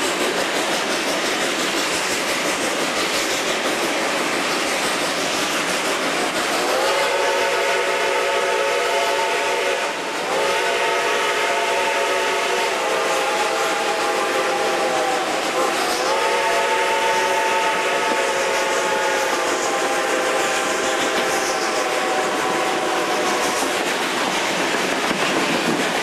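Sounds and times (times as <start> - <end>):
train running noise: 0.0 - 26.0
steam locomotive whistle: 6.6 - 23.9.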